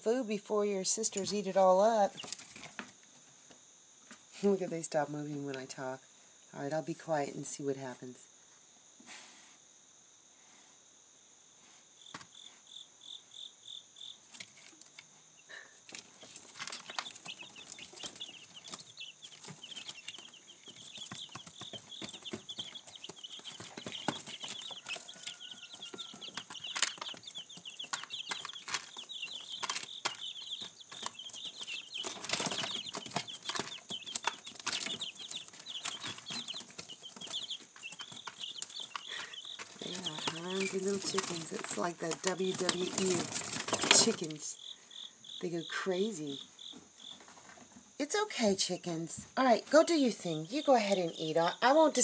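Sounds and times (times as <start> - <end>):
chicks peeping: 1.0 - 2.8, 12.0 - 51.8
scuffling and wing-flapping: 1.2 - 3.3, 15.8 - 44.7
pecking and scratching on paper: 15.9 - 44.4.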